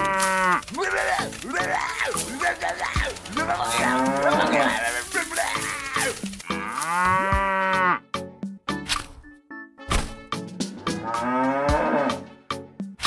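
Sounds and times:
faint clicks: 0.0 - 6.6
cow mooing: 0.0 - 8.0, 10.8 - 12.2.

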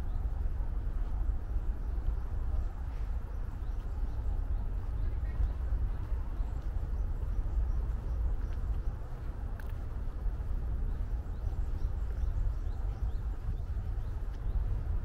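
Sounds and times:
faint distant voices: 0.6 - 7.7.

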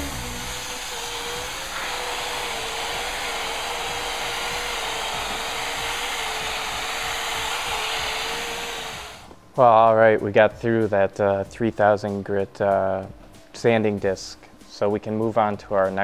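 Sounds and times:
electric drill motor whine: 0.0 - 9.3.

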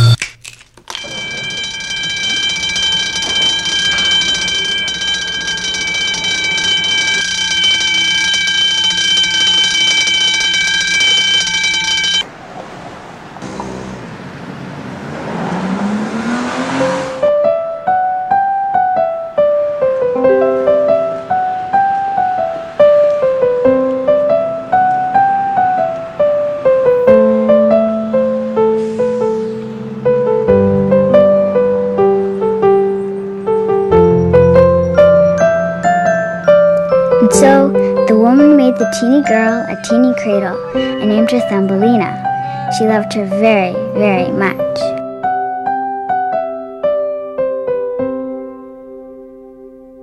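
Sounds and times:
high-pitched whine: 0.0 - 0.2
piano music: 1.0 - 12.2, 16.3 - 50.0
subway train pulling out: 12.2 - 18.1, 18.9 - 38.0.

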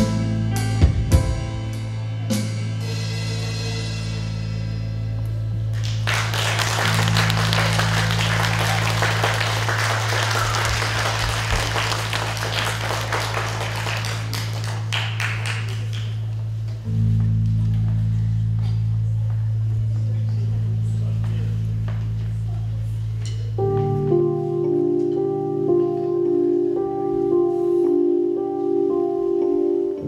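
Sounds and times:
audience applauding: 5.7 - 16.4.

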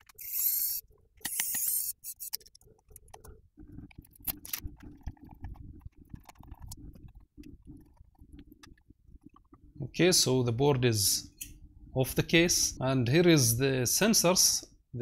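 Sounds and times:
small screws being removed: 0.0 - 3.1.

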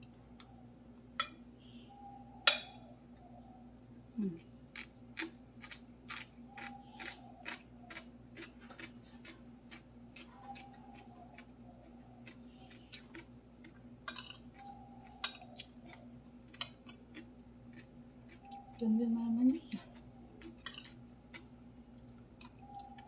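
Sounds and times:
low steady hum: 0.0 - 23.0
chewing with wet mouth clicks: 4.4 - 18.8, 19.6 - 23.0
spoon scraping on plate: 20.4 - 21.0.

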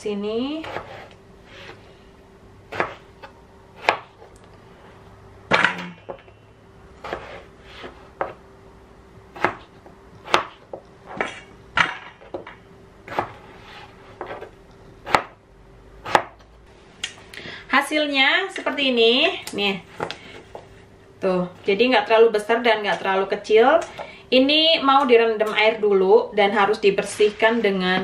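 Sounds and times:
faint steady hum: 0.0 - 28.0
knife chopping on plastic board: 2.7 - 4.2, 9.4 - 11.3, 13.1 - 13.4, 14.2 - 15.4, 16.0 - 16.4.

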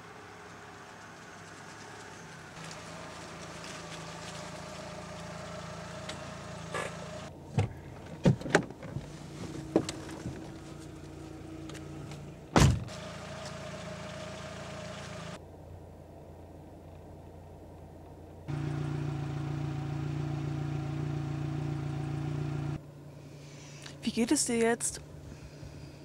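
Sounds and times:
car engine idling: 0.0 - 8.2, 9.1 - 24.1
car door slamming: 12.5 - 12.9.

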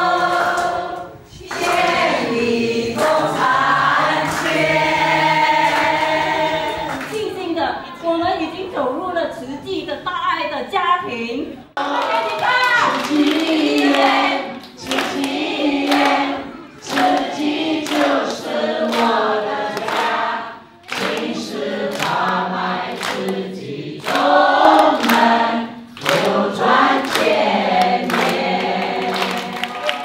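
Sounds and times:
hands clapping along: 0.0 - 7.2, 11.8 - 16.3, 16.9 - 20.2, 20.8 - 30.0
group singing together: 0.0 - 7.3, 11.8 - 30.0.

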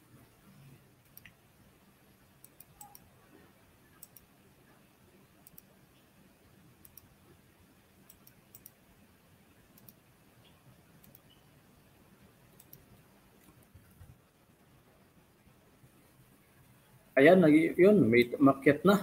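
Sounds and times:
faint sharp clicks: 1.0 - 1.4, 2.4 - 3.1, 4.0 - 4.3, 5.4 - 5.7, 6.8 - 7.1, 8.1 - 8.8, 9.8 - 11.4, 12.6 - 14.2.

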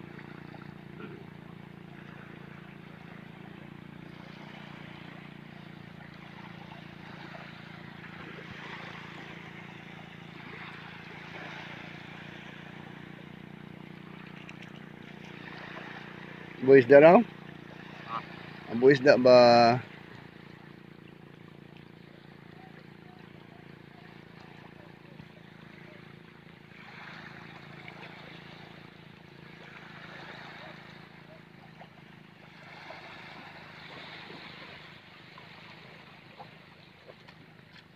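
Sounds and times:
motor running steadily: 0.0 - 37.9
rushing water and wind: 2.5 - 20.6.

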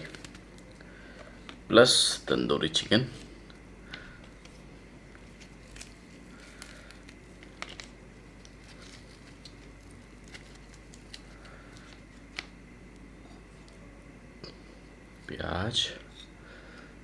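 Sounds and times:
bread crinkling being torn: 0.0 - 1.6, 3.9 - 13.8.

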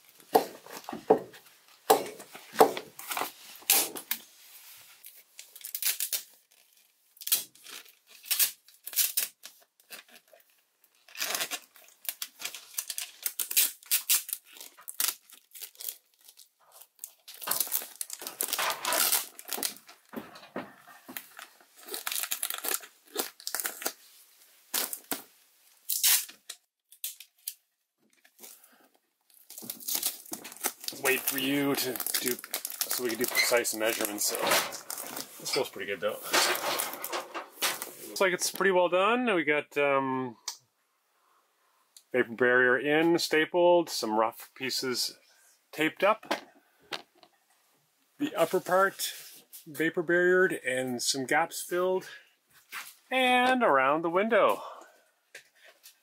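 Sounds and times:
tape pulled and torn: 1.9 - 4.2, 5.0 - 24.1, 24.7 - 25.3, 25.9 - 28.6, 29.3 - 38.1, 52.6 - 53.0
plastic sheeting crinkling: 2.9 - 25.3, 28.3 - 38.7.

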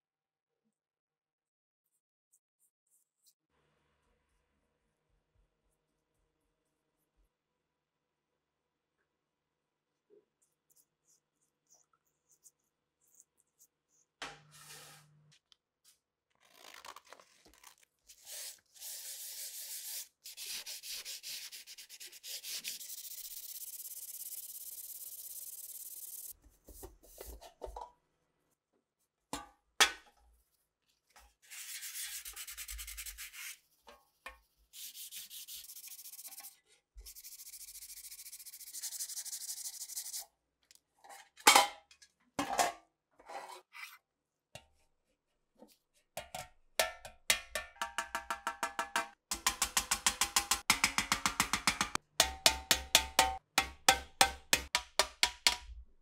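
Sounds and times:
sandpaper rubbing on metal: 18.2 - 26.3, 31.4 - 33.7, 34.7 - 40.2.

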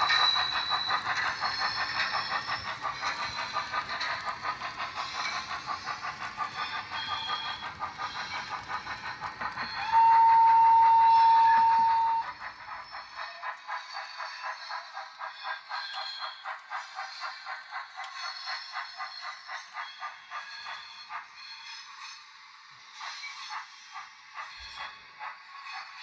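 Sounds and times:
steam locomotive chuffing: 0.0 - 26.0
model train whistle: 9.8 - 12.4.

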